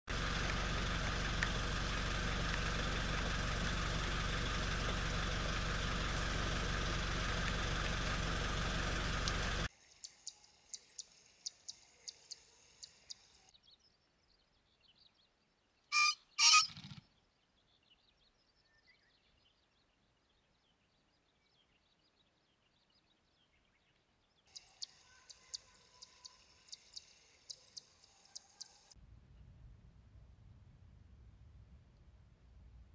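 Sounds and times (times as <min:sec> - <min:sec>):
wing-beats whirr: 0:00.1 - 0:13.3
faint ticks: 0:04.9 - 0:13.3
pheasant crowing: 0:15.9 - 0:16.8.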